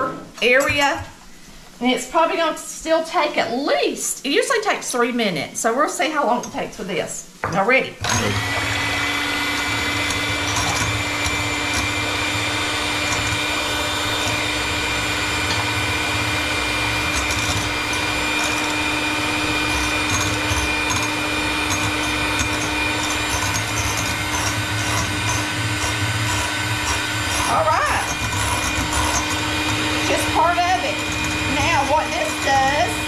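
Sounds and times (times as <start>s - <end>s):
electric hand mixer running: 8.0s - 33.0s.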